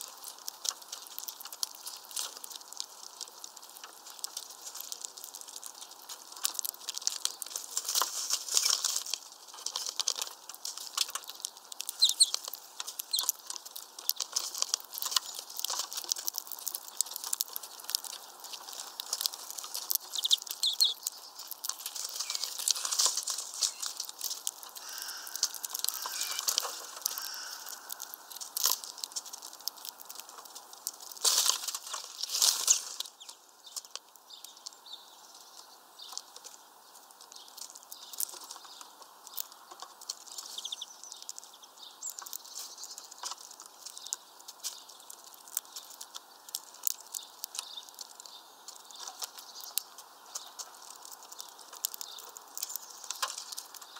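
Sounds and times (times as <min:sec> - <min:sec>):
birds pecking seeds: 0:00.0 - 0:53.9
wings fluttering: 0:11.9 - 0:16.3, 0:17.5 - 0:30.6.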